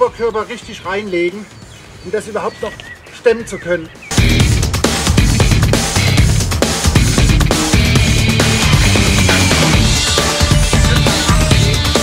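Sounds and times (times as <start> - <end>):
heavy rock music: 4.0 - 12.0.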